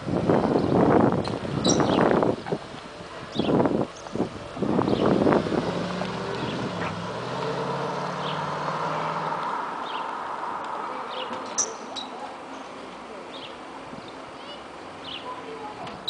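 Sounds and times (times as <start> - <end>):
car engine driving away: 0.3 - 11.5.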